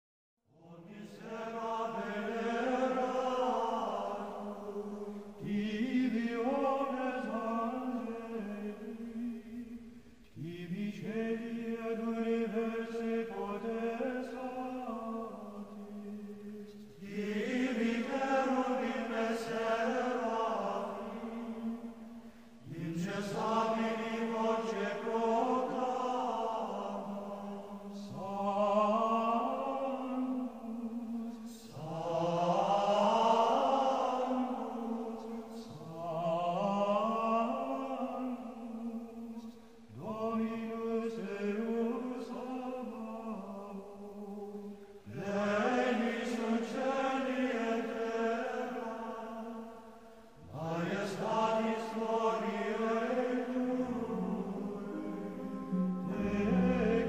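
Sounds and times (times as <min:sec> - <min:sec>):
voices singing a chant: 0:00.5 - 0:57.0
low held drone note: 0:53.9 - 0:57.0.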